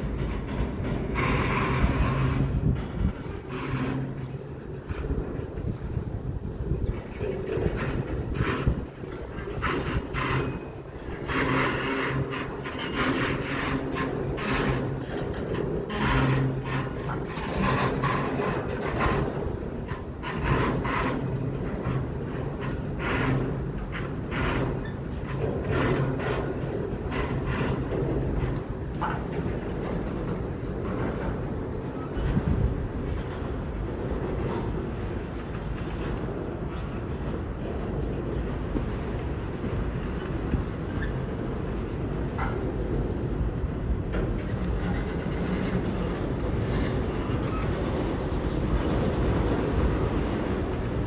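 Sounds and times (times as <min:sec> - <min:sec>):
metallic wheel scraping: 0:00.0 - 0:06.0, 0:06.8 - 0:29.2
freight train rumbling on rails: 0:00.0 - 0:51.0.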